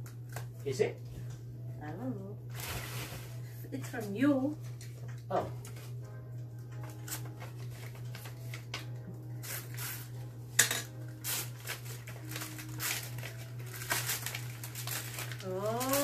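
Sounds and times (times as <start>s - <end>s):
steady low hum: 0.0s - 16.0s
tissue paper rustling: 2.5s - 3.6s, 9.3s - 10.1s, 11.2s - 16.0s.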